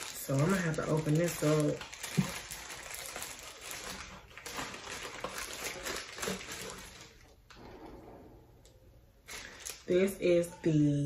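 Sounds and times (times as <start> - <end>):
plastic bag crinkling: 0.0 - 7.4, 9.2 - 10.1.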